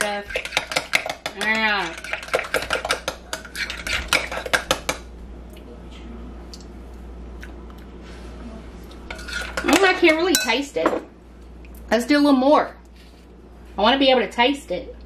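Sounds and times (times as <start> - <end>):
metal spoon clinking in glass bowl: 9.1 - 10.6.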